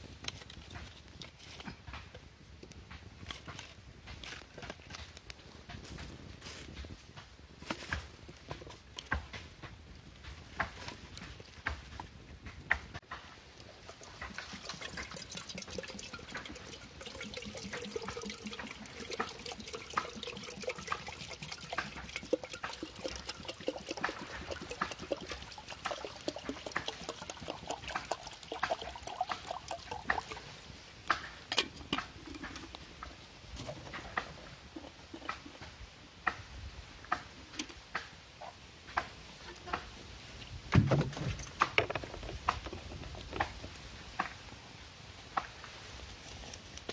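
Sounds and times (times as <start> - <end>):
fire crackling and popping: 0.0 - 38.2, 41.4 - 46.9
water pouring into kettle: 13.8 - 30.6.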